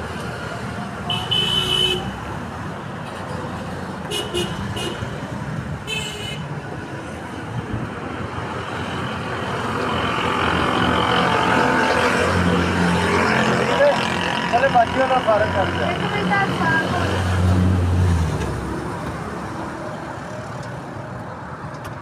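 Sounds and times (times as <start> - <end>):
street traffic: 0.0 - 22.0
car horn toots: 1.1 - 2.1.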